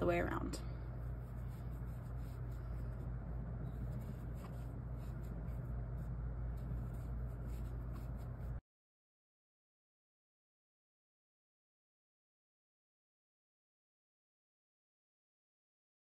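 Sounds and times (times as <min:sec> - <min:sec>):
steady low hum: 0:00.0 - 0:08.6
yarn rustling over crochet hook: 0:01.0 - 0:08.6.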